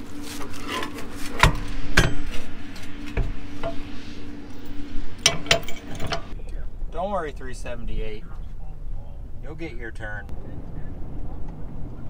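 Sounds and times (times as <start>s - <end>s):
low steady hum: 0.0s - 12.0s
metal clanks and clinks: 5.2s - 6.3s.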